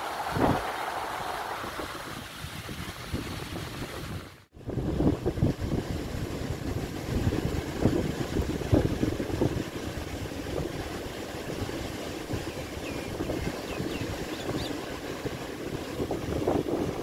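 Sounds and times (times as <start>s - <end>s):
sea surf: 0.0s - 17.0s
wind buffeting microphone: 0.0s - 17.0s
bird chirps: 12.8s - 14.8s.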